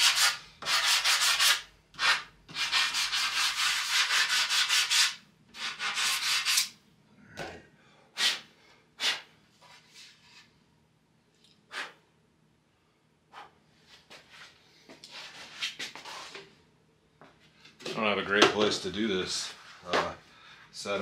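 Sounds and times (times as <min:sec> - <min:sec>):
sandpaper rubbing on wood: 0:00.0 - 0:06.7.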